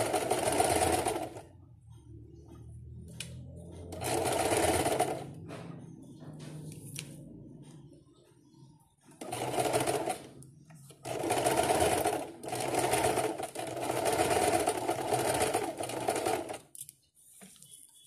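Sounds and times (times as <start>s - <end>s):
sewing machine stitching: 0.0s - 1.5s, 3.7s - 5.6s, 9.1s - 16.7s.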